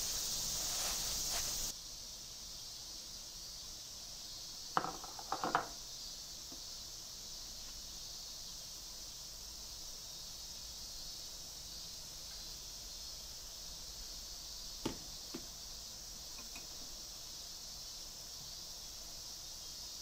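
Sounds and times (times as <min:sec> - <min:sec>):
insects chirring: 0:00.0 - 0:20.0
glass jug set on steel counter: 0:04.8 - 0:05.7, 0:16.4 - 0:16.7.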